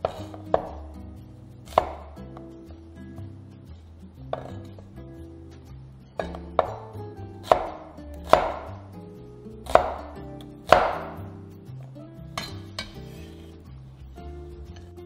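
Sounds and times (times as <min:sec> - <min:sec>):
cleaver chopping on wooden board: 0:00.0 - 0:00.9, 0:01.7 - 0:02.2, 0:06.2 - 0:08.9, 0:09.6 - 0:11.3
soft background music: 0:00.0 - 0:15.0.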